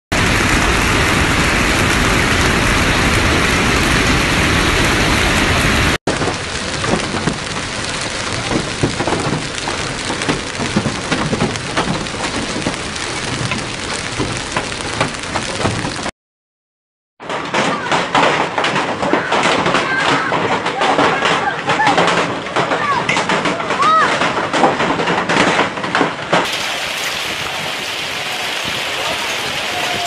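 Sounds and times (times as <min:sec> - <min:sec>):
hail and rain pelting ground: 0:00.2 - 0:16.1, 0:17.3 - 0:30.0
hailstones ticking on paving: 0:06.1 - 0:16.1, 0:26.4 - 0:30.0.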